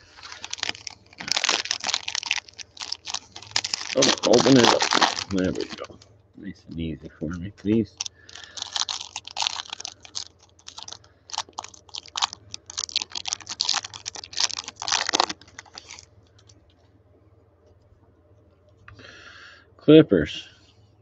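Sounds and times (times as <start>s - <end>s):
cards being handled: 0.0s - 6.0s
foil wrapper crinkling: 0.0s - 6.0s, 7.7s - 16.1s.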